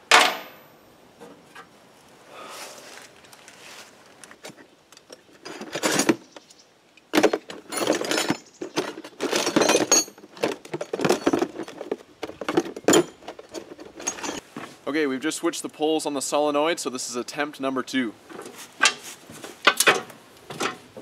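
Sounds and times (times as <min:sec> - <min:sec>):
rustling: 0:01.2 - 0:06.6, 0:07.2 - 0:14.9, 0:18.2 - 0:21.0
metallic clinks and rattles: 0:05.0 - 0:06.3, 0:07.2 - 0:14.4.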